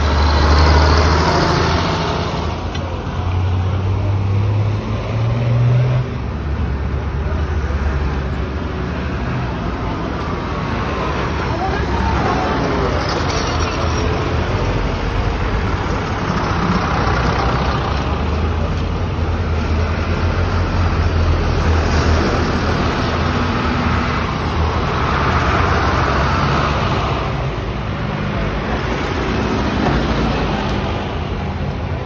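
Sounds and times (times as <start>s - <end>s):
tractors driving past: 0.0s - 32.0s.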